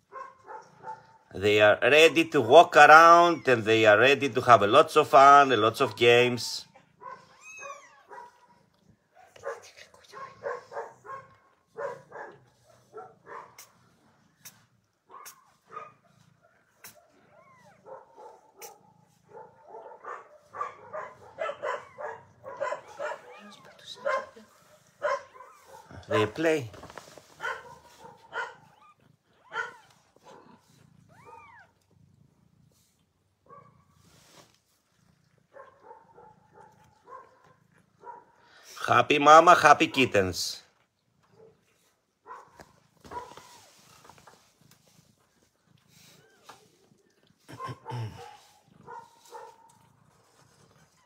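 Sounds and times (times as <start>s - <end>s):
kittens mewing: 2.0s - 4.1s, 6.6s - 8.5s, 20.8s - 24.6s, 28.1s - 32.1s.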